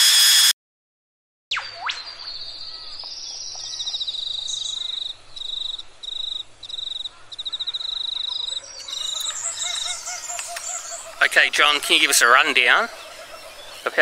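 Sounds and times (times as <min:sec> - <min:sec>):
insects trilling: 0:03.8 - 0:14.0.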